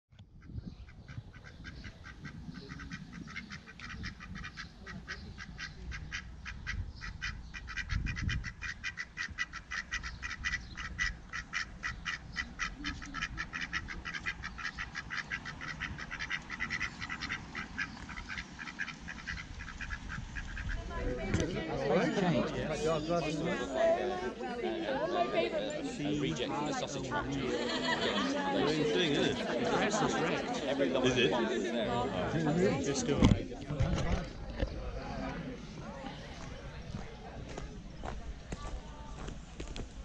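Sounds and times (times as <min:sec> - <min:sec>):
ducks quacking: 0:00.4 - 0:22.9.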